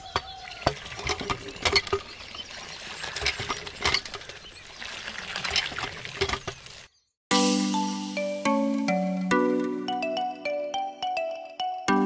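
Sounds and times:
hand pump clicks: 0.2s - 2.1s
water pattering into pool: 0.7s - 6.9s.

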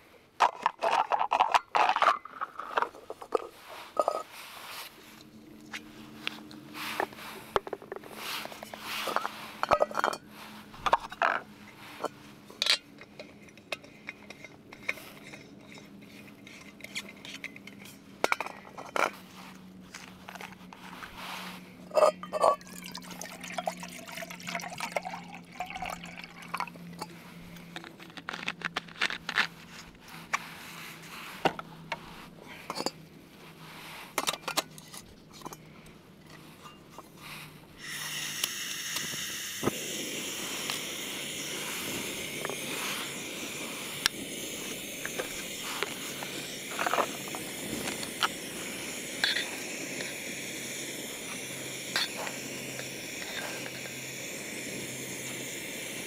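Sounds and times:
dishes clinking: 9.1s - 10.3s, 21.9s - 23.8s
liquid pouring: 22.5s - 27.1s
steady hiss: 37.2s - 56.0s.

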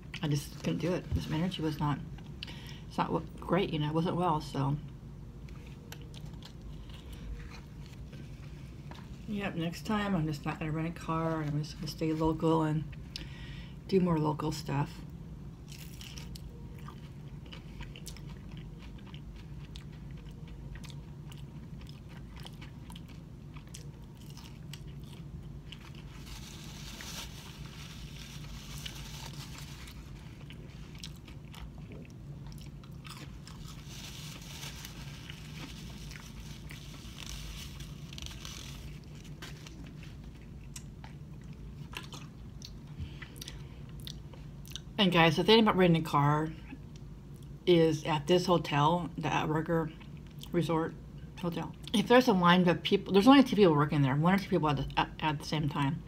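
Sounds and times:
low hum: 0.0s - 51.9s
person chewing fried fish: 5.4s - 9.1s, 15.7s - 44.9s.

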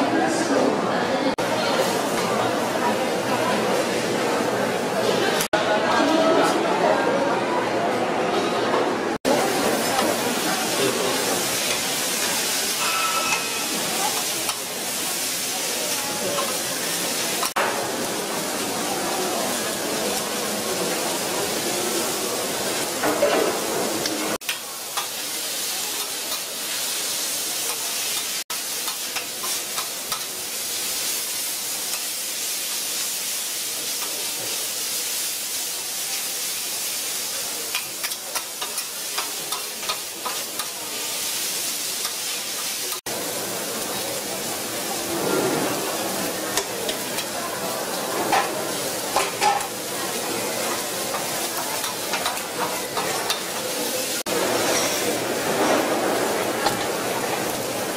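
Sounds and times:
food sizzling on griddle: 9.2s - 57.9s
metal spatulas scraping and clicking: 37.7s - 40.8s.

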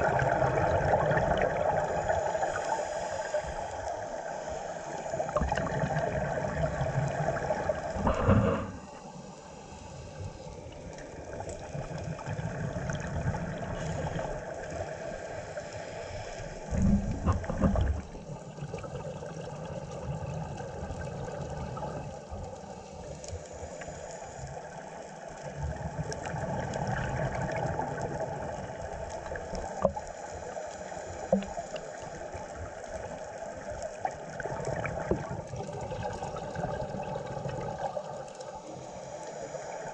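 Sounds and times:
underwater bubble bursts: 0.0s - 2.8s, 4.9s - 8.9s, 10.7s - 15.3s, 16.5s - 22.6s, 25.3s - 30.2s, 31.1s - 38.5s
steady hiss: 1.6s - 12.3s, 13.0s - 18.6s, 21.4s - 25.6s, 27.2s - 34.4s, 36.0s - 39.9s
diver breathing through regulator: 1.9s - 5.4s, 7.8s - 10.4s, 13.7s - 17.6s.

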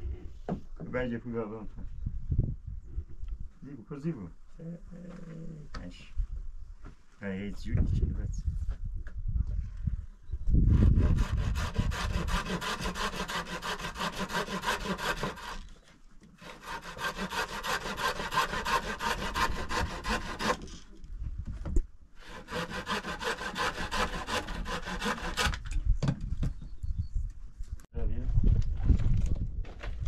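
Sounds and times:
hand saw cutting wood: 10.8s - 15.8s, 16.4s - 21.0s, 22.2s - 25.7s.

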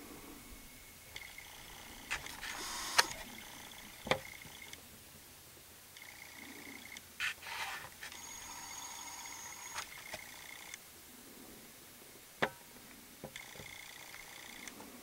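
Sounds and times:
camcorder zoom motor whine: 0.2s - 4.8s, 6.0s - 10.8s, 13.4s - 14.8s
brief rustle: 7.2s - 8.2s.

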